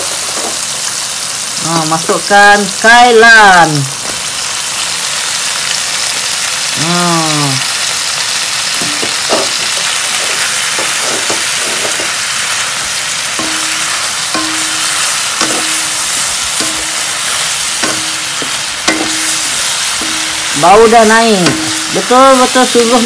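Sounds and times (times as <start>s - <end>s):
vegetables sizzling in a wok: 0.0s - 23.0s
spatula scraping and tossing: 8.9s - 23.0s.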